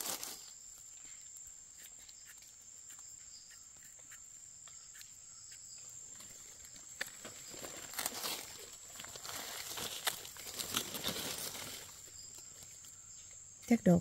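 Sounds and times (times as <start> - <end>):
dry leaf litter rustling: 0.0 - 0.9, 6.2 - 12.9.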